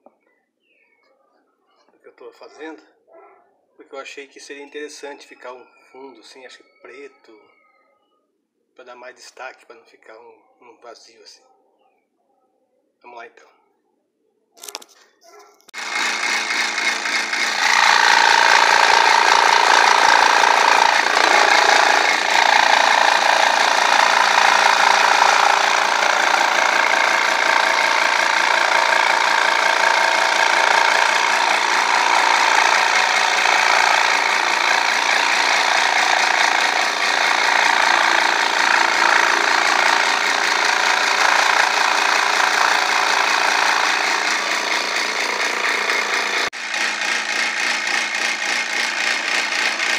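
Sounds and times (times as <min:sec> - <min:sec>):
scroll saw cutting plywood: 0:15.8 - 0:49.9.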